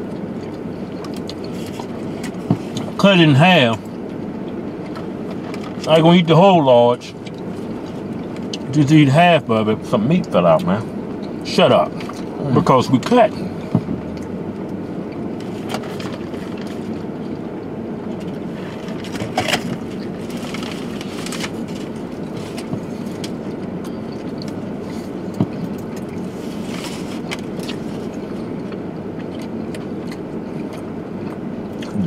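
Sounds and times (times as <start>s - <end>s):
car cabin hum: 0.0s - 32.0s
foil wrapper rustling: 18.8s - 23.3s.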